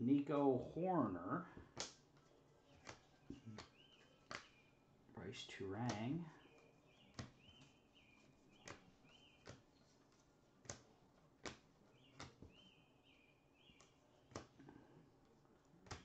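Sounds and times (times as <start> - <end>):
cards flipped through by hand: 1.7 - 4.6, 7.1 - 12.6, 13.7 - 14.7, 15.8 - 16.0.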